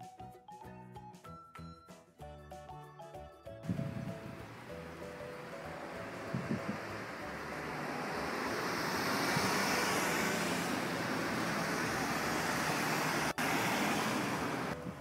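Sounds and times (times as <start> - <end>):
road traffic passing close: 3.6 - 15.0.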